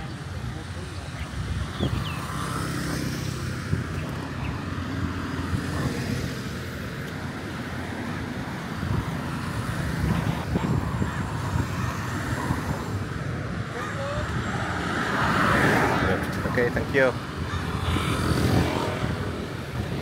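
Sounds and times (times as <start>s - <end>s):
passing vehicle engines: 0.0s - 20.0s.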